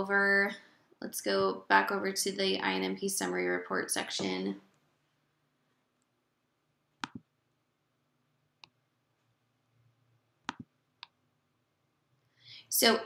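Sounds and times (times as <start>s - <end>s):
mouse button clicks: 7.0s - 7.3s, 10.4s - 11.2s.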